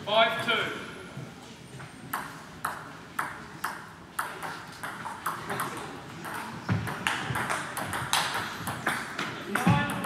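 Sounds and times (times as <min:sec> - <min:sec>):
table tennis balls clicking: 0:02.1 - 0:10.0.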